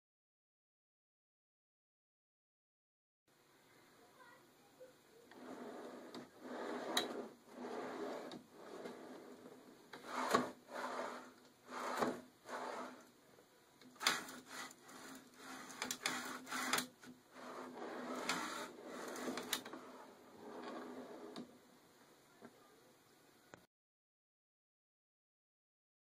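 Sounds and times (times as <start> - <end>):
drawer slides rolling: 5.3 - 13.1, 14.0 - 21.5.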